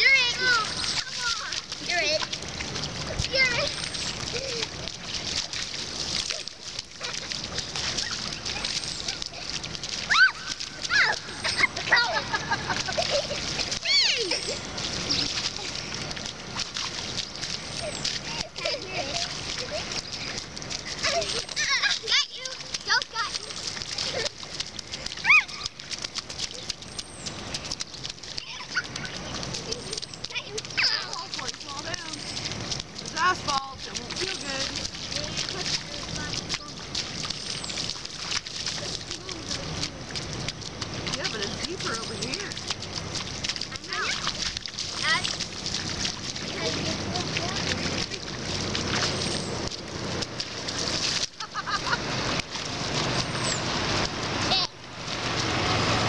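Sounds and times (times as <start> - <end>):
bare feet splashing in puddles: 0.0 - 56.0
children's squeaky cries: 6.2 - 12.1, 13.7 - 15.7
child squealing: 10.0 - 11.6, 13.8 - 14.5, 25.2 - 25.7.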